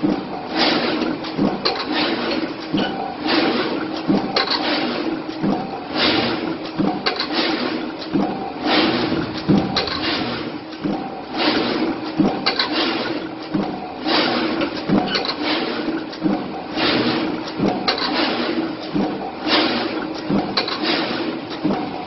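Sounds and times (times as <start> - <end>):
cardboard rushing through machine: 8.6 - 10.6.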